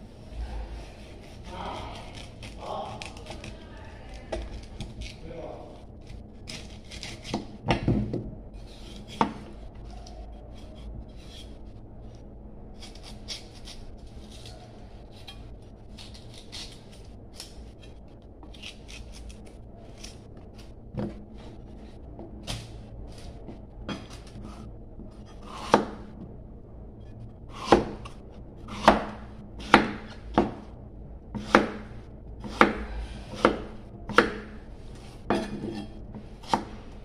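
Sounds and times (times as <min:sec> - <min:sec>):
knife peeling vegetable skin: 0:00.7 - 0:07.5, 0:12.8 - 0:20.7.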